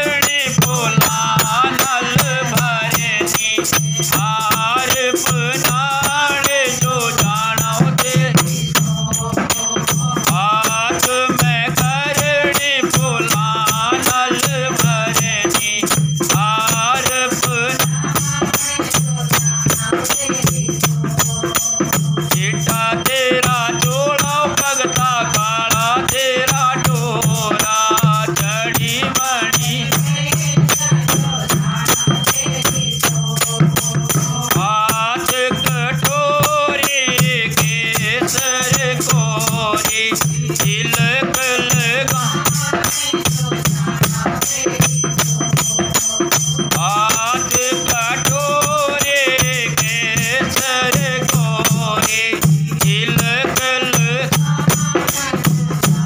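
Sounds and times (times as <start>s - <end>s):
rattle-like percussion: 0.0s - 56.0s.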